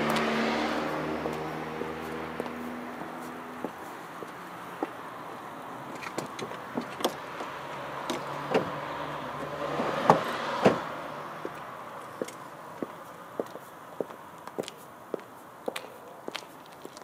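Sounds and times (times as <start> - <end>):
car passing by: 0.0 - 12.1.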